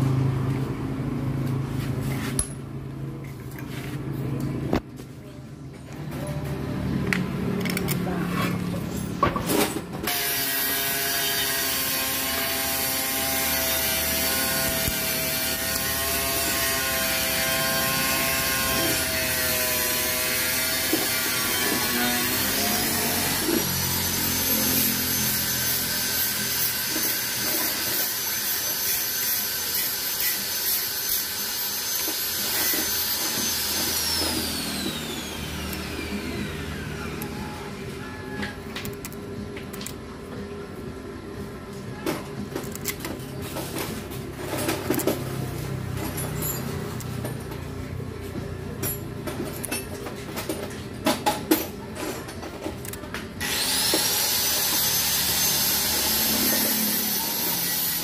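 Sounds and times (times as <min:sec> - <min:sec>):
power tool motor whine: 0:10.1 - 0:37.6, 0:53.4 - 0:58.0.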